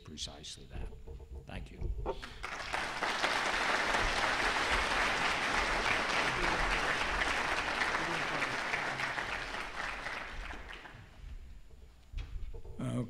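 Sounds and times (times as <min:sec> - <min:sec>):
audience applauding: 0:02.2 - 0:11.3.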